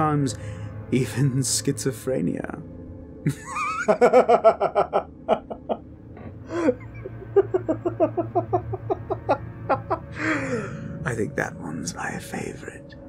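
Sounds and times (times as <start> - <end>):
person laughing sinisterly: 3.3 - 5.8, 6.4 - 10.9.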